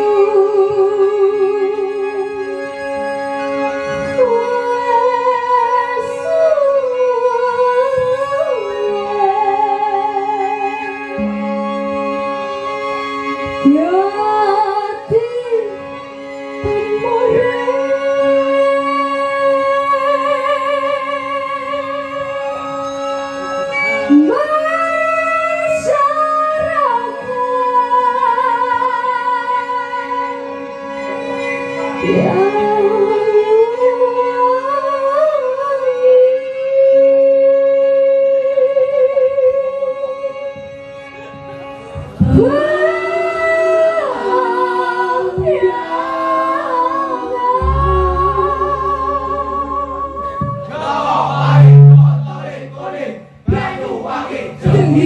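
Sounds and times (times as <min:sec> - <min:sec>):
steady held tones: 0:31.9 - 0:33.5, 0:47.0 - 0:55.0
sliding vibrato melody: 0:32.0 - 0:33.0, 0:47.6 - 0:55.0
high singing voice: 0:42.2 - 0:55.0.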